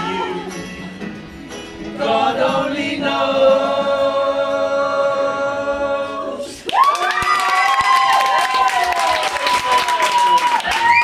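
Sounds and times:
man and children singing: 1.9s - 6.6s.

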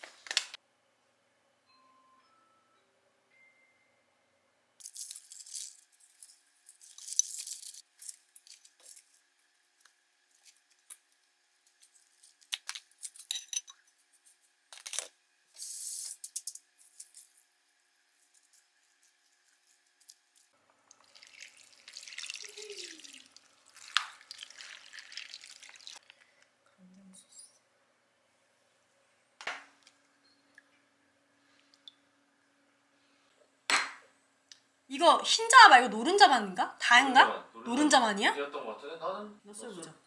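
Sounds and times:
vegetables rustling and crackling: 18.1s - 26.4s
broth pouring and splashing: 20.9s - 26.2s.

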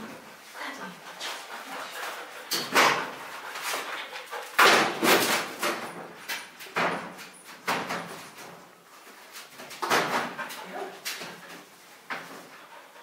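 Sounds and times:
metal shelves rattling and knocking: 4.6s - 8.8s, 9.5s - 11.4s.

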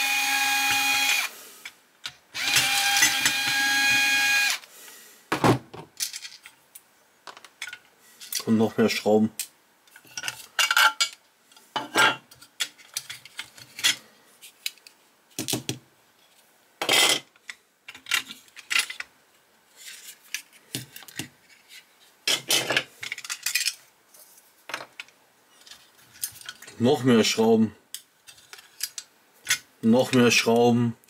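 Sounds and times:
screwdriver undoing small screws: 0.0s - 1.3s, 2.4s - 4.6s
clicks and scrapes of small parts: 6.0s - 8.5s, 9.4s - 26.8s, 27.9s - 30.4s.

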